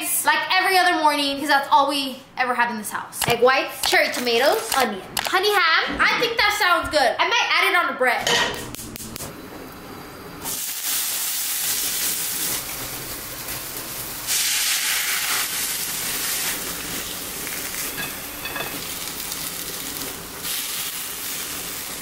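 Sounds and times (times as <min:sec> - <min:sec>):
food sizzling in a frying pan: 0:09.8 - 0:22.0.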